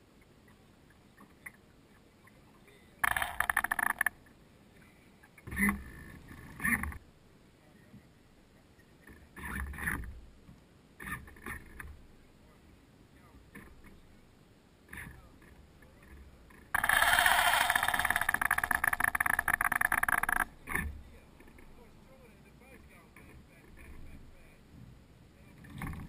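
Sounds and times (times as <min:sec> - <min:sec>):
servo winch whirring: 0:16.8 - 0:20.4.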